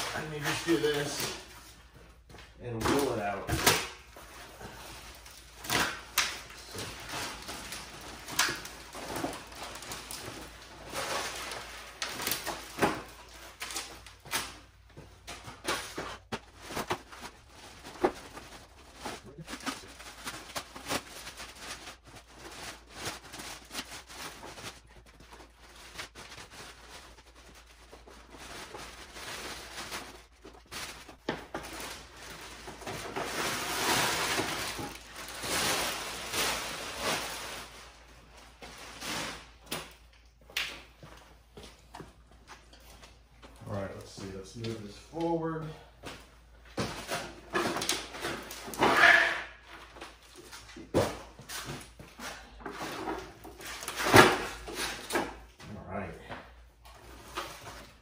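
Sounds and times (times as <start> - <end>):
plastic wrapping crinkling: 2.9 - 40.3.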